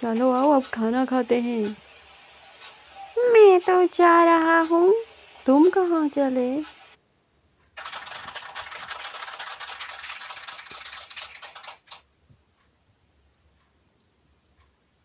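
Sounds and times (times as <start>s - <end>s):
scratchy crackling noise: 7.6s - 12.1s.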